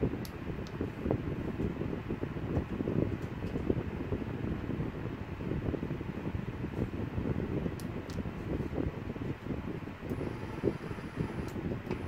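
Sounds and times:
machine low uneven rumble: 0.0 - 12.0
faint high whine: 10.1 - 12.0.

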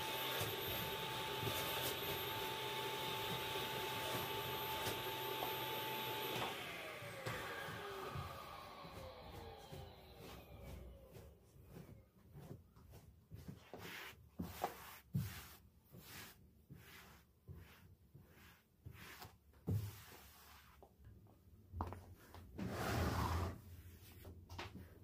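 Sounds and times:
rubbing or scraping noise: 13.4 - 20.8, 22.3 - 24.4.

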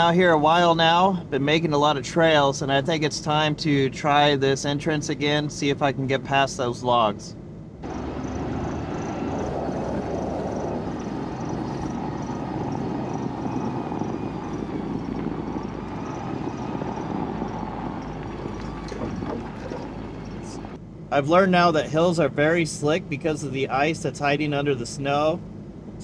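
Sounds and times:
engine running: 7.7 - 26.0
tyres rolling through snow: 7.8 - 20.8.

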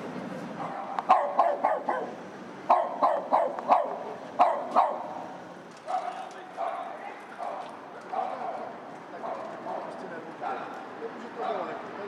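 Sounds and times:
small dog yapping: 0.8 - 5.1.

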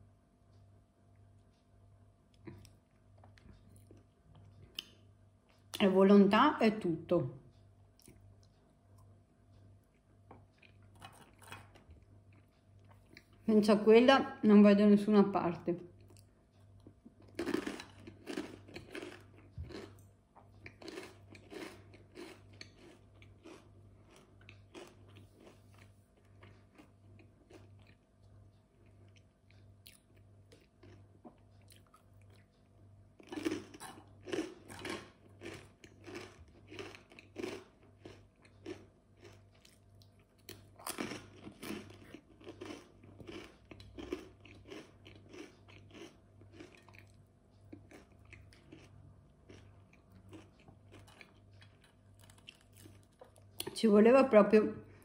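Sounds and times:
crunching crisp snack: 16.0 - 28.0, 28.8 - 32.6, 33.2 - 53.7.

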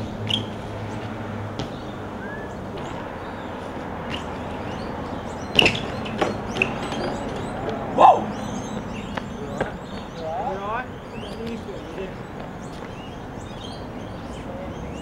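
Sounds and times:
distant traffic: 0.0 - 15.0
bike clattering across road: 5.5 - 7.8.

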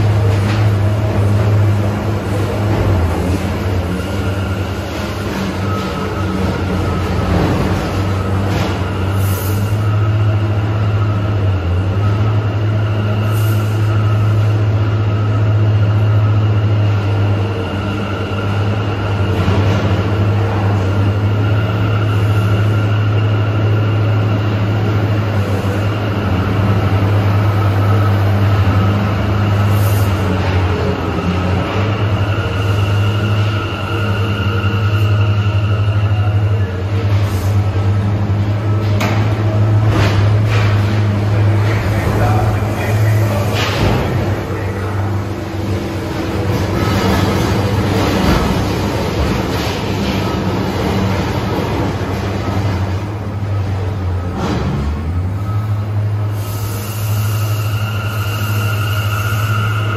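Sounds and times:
subway train low hum: 0.0 - 59.9.

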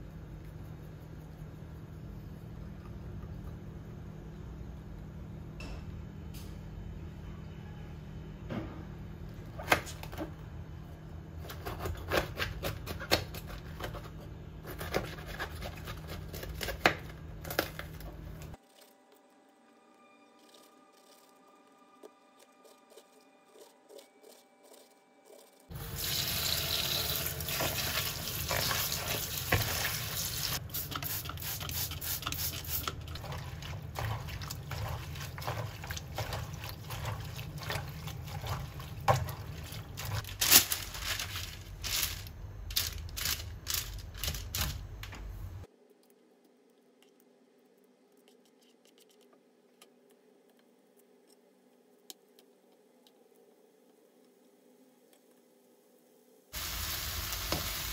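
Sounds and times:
tap water running into a bowl: 25.8 - 30.3.

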